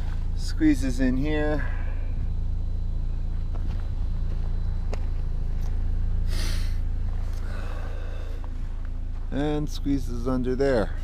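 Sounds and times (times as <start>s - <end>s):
van engine idling: 0.0s - 11.0s.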